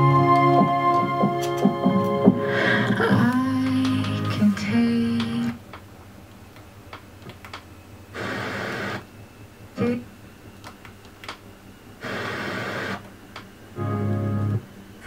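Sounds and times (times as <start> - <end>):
faint radio hiss: 2.6 - 15.0
tuner clicks: 3.2 - 5.9, 10.6 - 11.4
radio static hiss: 8.0 - 10.6, 11.8 - 13.8.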